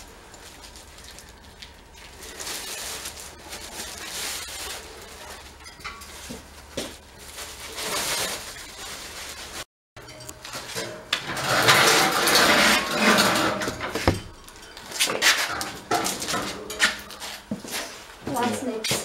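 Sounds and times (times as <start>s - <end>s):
sheet metal parts clattering: 10.0s - 17.4s.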